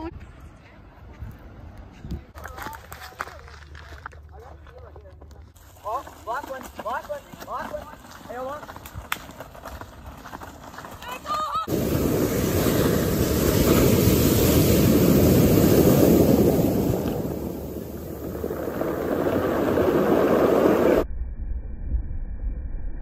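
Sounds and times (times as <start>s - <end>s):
surf breaking on pebble beach: 11.7s - 21.0s
wind rumble on microphone: 11.7s - 23.0s.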